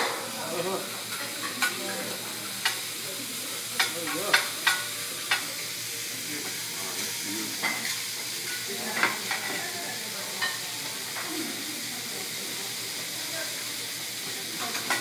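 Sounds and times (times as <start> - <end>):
food sizzling on a hot griddle: 0.0 - 15.0.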